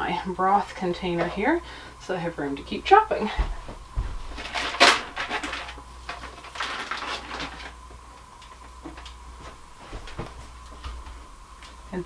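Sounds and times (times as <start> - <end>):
low steady hum: 0.0 - 12.0
rustling and clatter of containers: 3.2 - 11.7.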